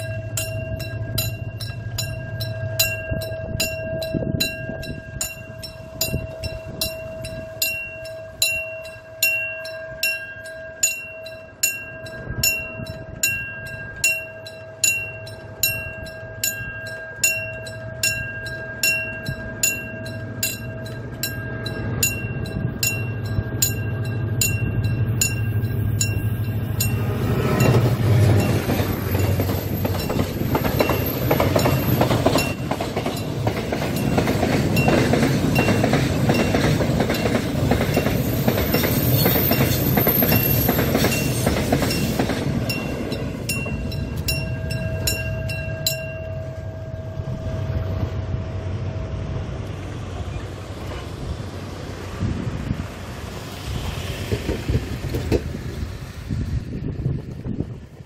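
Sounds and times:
level crossing bell ringing: 0:00.0 - 0:30.2, 0:42.7 - 0:48.1
locomotive rumbling: 0:00.0 - 0:58.0
train wheels clattering on rails: 0:10.4 - 0:46.6, 0:52.8 - 0:56.2.

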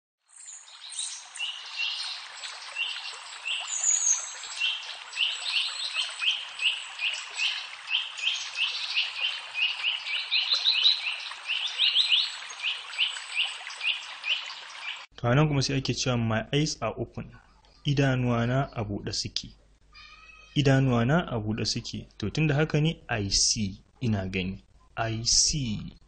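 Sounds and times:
birds chirping: 0:00.4 - 0:15.1, 0:17.2 - 0:20.8.

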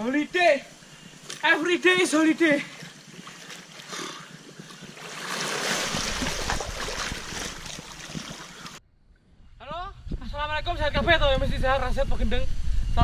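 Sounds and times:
water splashing and churning: 0:01.2 - 0:08.8.

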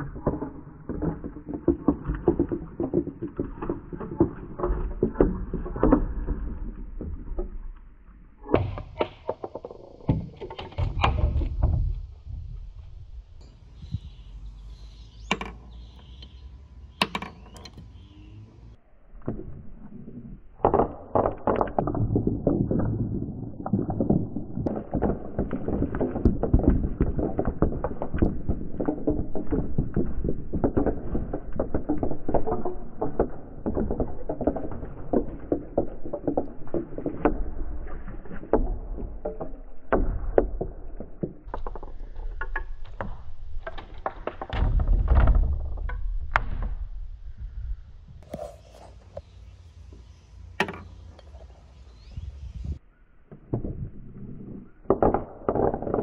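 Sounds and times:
marbles rolling on wooden tracks: 0:00.0 - 0:14.2, 0:20.2 - 0:47.1, 0:53.5 - 0:56.0.

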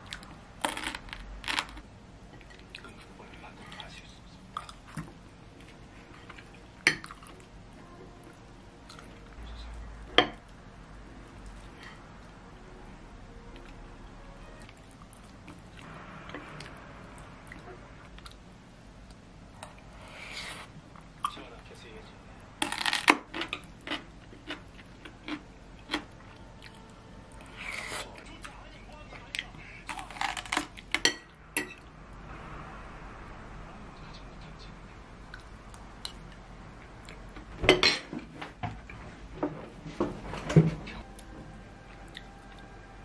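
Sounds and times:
chewing with sharp clicks: 0:22.7 - 0:26.8.

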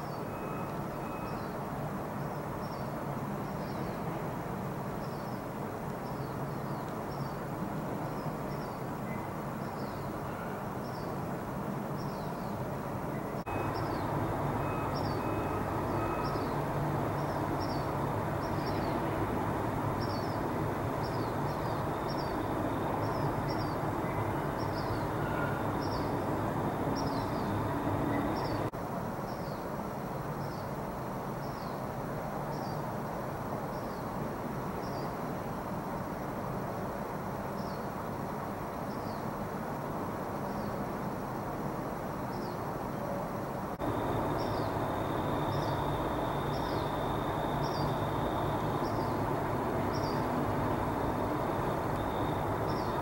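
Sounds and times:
distant traffic rumble: 0:00.0 - 0:28.8, 0:41.5 - 0:53.0
small bird chirping: 0:13.5 - 0:19.1, 0:43.9 - 0:53.0.

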